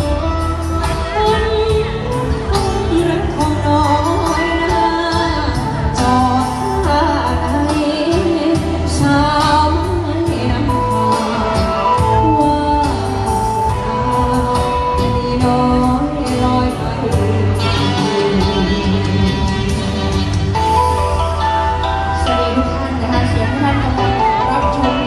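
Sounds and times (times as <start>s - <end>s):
person singing: 0.0s - 19.8s
band playing with bass line: 0.0s - 25.0s.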